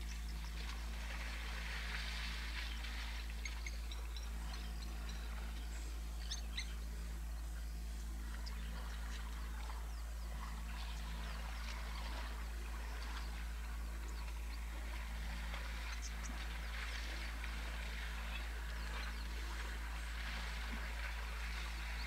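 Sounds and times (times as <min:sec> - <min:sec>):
low hum: 0:00.0 - 0:22.0
small birds chirping: 0:02.6 - 0:20.2.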